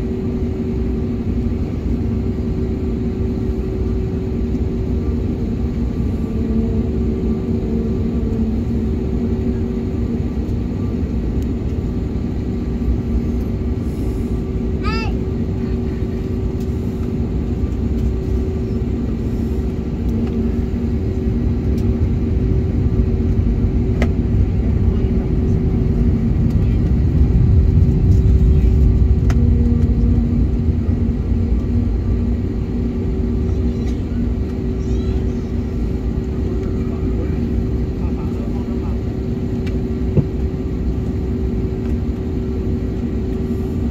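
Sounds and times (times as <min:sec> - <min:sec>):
jet engines idling rumble: 0:00.0 - 0:43.9.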